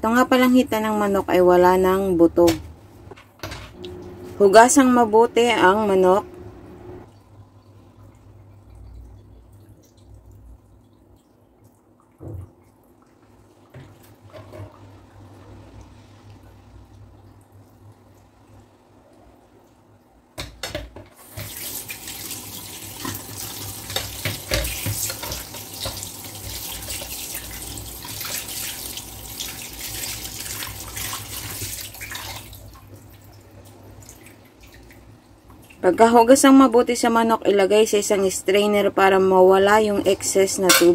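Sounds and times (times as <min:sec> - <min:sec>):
tap water splashing into sink: 0:20.4 - 0:33.3.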